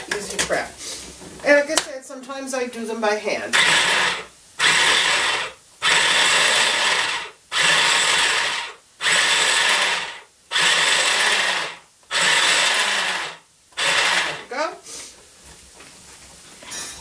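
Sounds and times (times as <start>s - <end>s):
food chopper motor whirring: 3.5s - 14.5s.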